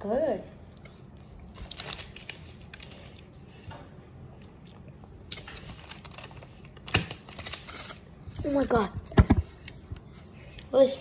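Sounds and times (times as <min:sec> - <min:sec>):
paper wrapper crinkling: 0:01.4 - 0:03.2, 0:05.3 - 0:08.7.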